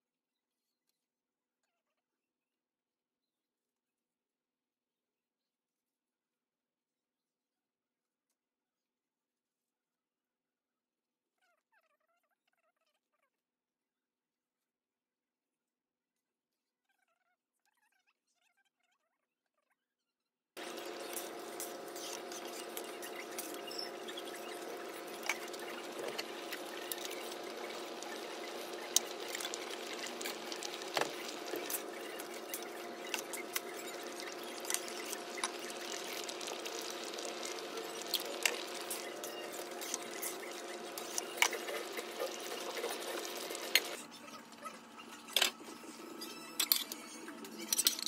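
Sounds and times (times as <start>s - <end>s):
pot bubbling with small pops: 20.6s - 44.0s.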